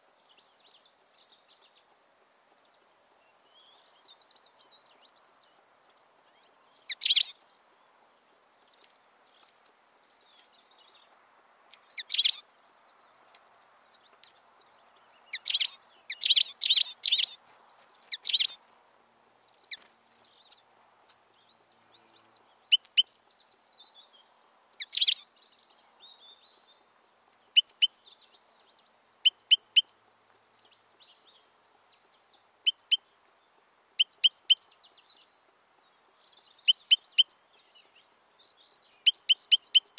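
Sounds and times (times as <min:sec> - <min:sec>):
finch twittering: 0:06.9 - 0:07.4, 0:12.0 - 0:12.4, 0:15.3 - 0:17.4, 0:18.1 - 0:18.6, 0:22.7 - 0:23.2, 0:24.8 - 0:25.3, 0:29.3 - 0:29.9, 0:32.7 - 0:33.1, 0:36.6 - 0:37.4, 0:38.8 - 0:39.9.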